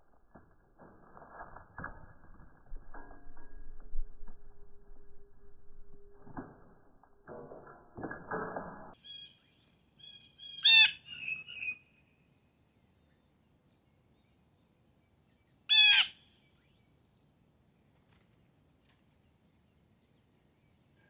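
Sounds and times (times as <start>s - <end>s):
blue jay harsh calls: 9.0s - 11.8s, 15.7s - 16.4s
faint thin bird chirps: 9.0s - 12.4s.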